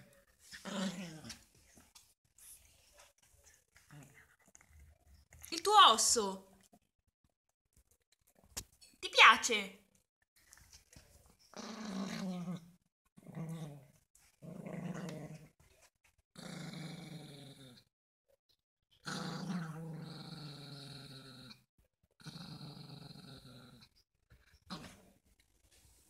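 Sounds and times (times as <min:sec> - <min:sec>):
dog growling: 0:00.5 - 0:01.5, 0:11.5 - 0:15.5, 0:16.4 - 0:17.9, 0:19.0 - 0:21.6, 0:22.2 - 0:23.9, 0:24.7 - 0:25.1.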